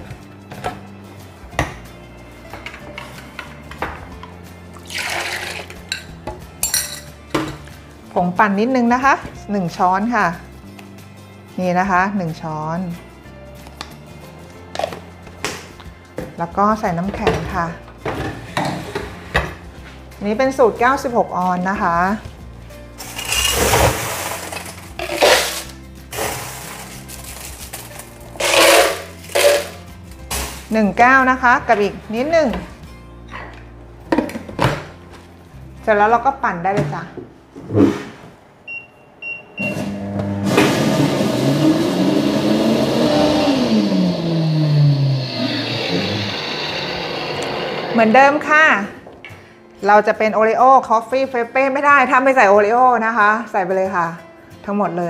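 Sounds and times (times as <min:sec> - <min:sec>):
liquid pouring into jar: 0:04.8 - 0:05.8
ice cubes clattering: 0:04.8 - 0:06.1, 0:23.0 - 0:29.8.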